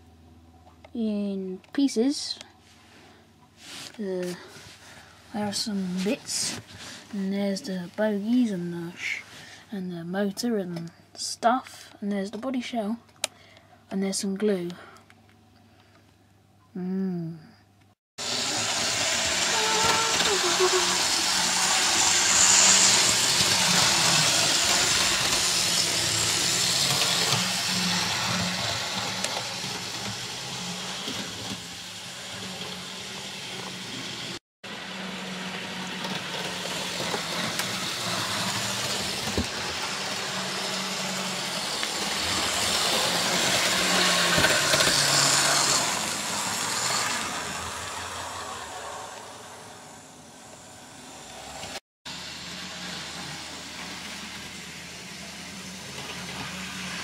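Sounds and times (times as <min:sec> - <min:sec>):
model train motor whirring: 0:18.2 - 0:49.9.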